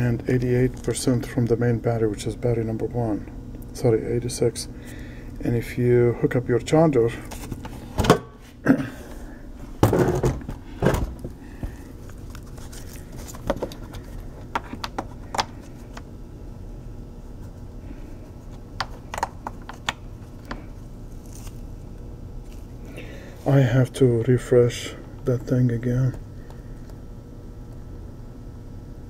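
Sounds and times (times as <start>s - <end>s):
low background hum: 0.0s - 29.0s.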